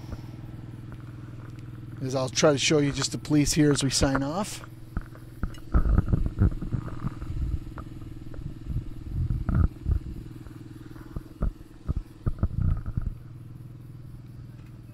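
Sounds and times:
low engine hum: 0.0s - 14.9s
microphone handling thumps: 3.0s - 13.3s.

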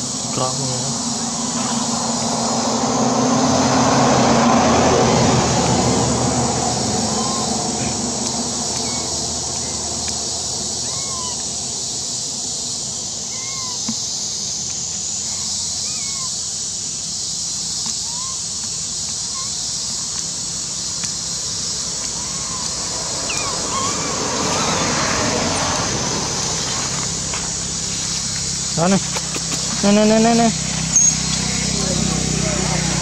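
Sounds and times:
steady high-pitched hiss: 0.0s - 33.0s
high chirping calls: 5.6s - 20.3s, 20.9s - 27.1s, 27.7s - 33.0s.

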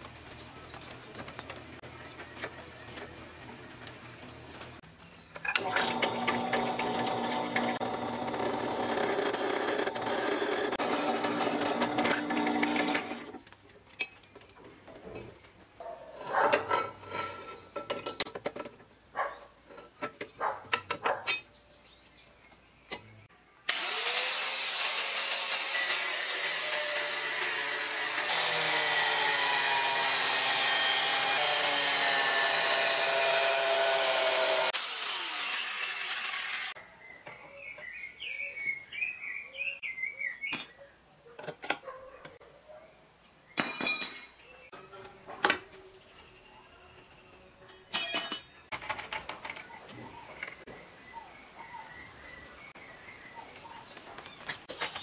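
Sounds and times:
drill press boring steel: 5.6s - 13.3s, 23.7s - 36.8s
angle grinder cutting steel: 5.6s - 13.4s, 23.7s - 36.8s.

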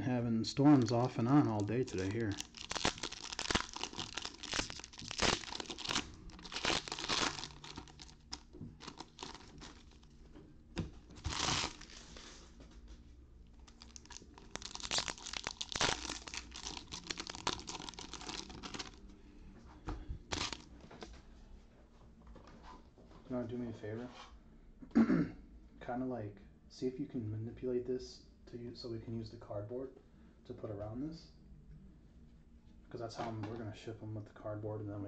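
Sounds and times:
foil wrappers tearing and crinkling: 0.8s - 10.0s, 11.2s - 12.1s, 13.7s - 19.0s, 20.3s - 20.6s.

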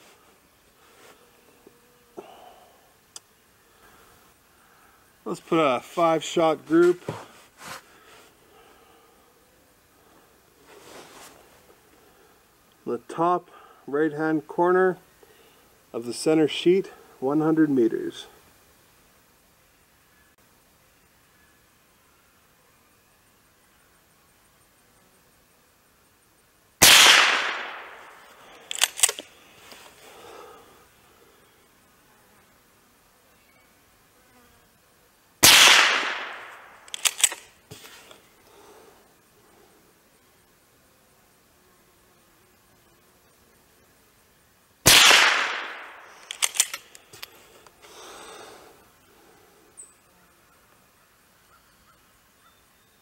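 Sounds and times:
rifle shot: 26.8s - 29.2s, 35.4s - 37.4s, 44.9s - 46.9s
pump action metallic clicks: 28.7s - 29.2s, 36.9s - 37.4s, 46.2s - 47.3s.

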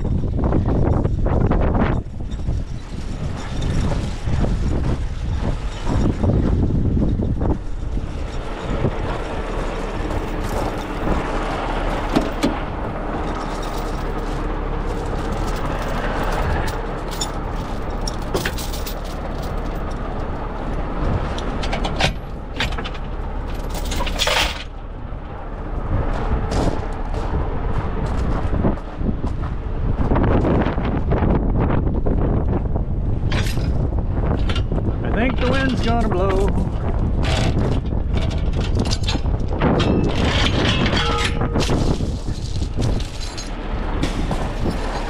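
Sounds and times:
diesel engine idling: 0.0s - 38.6s, 39.2s - 45.0s
sharp metal clanks: 37.3s - 45.0s.

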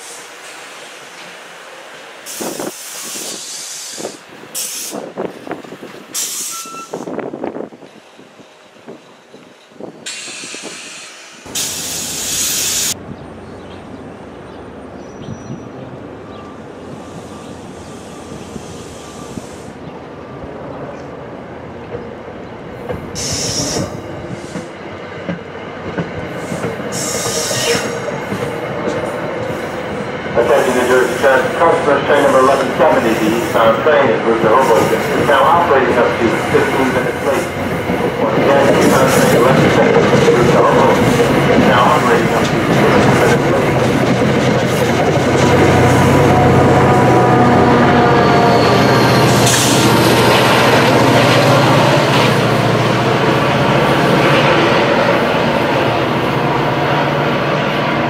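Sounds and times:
train air brakes hissing: 0.0s - 1.0s, 2.2s - 5.1s, 6.1s - 7.2s, 10.0s - 13.0s, 16.9s - 19.8s, 23.1s - 24.8s, 26.3s - 28.5s, 30.5s - 31.4s
train clunks and rumbling: 0.0s - 19.2s, 19.8s - 58.0s
high-pitched wheel squeal: 6.2s - 7.1s, 47.0s - 49.8s.

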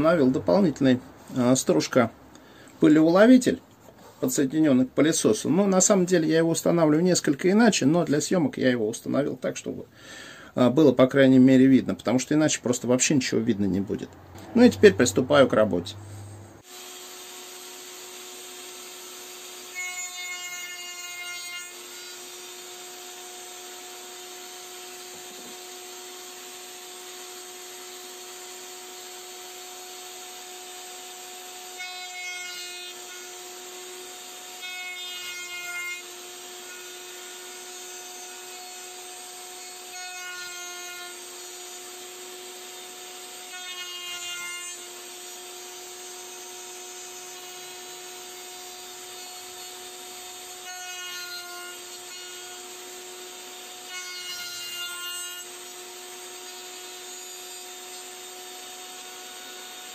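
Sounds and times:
router cutting wood whine: 14.4s - 59.9s
router and dust vacuum running: 16.6s - 19.8s, 22.2s - 31.8s.

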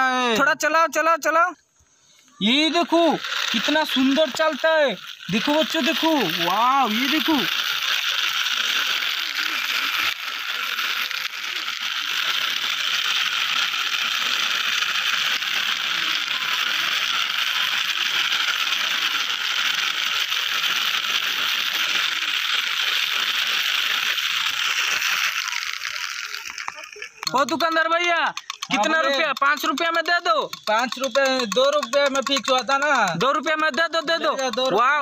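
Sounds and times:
toy scooter ratcheting whirr: 2.2s - 35.0s.

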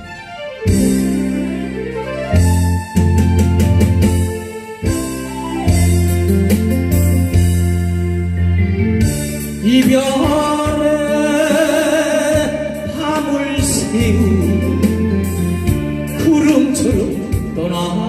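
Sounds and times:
instrumental accompaniment with bass: 0.0s - 18.0s
man singing into a microphone: 9.6s - 18.0s.

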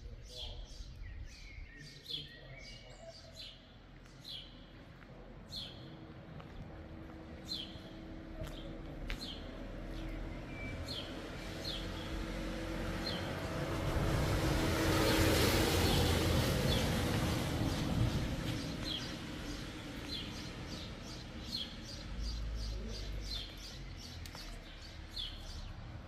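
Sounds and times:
car driving past: 9.5s - 26.0s.

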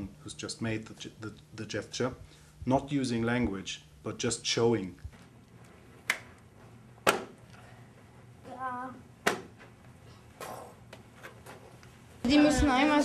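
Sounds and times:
sharp hand claps: 6.0s - 6.3s.

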